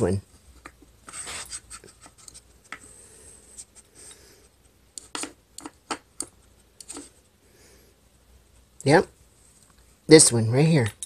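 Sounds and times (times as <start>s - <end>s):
wooden discs scraping and knocking: 5.0s - 7.2s.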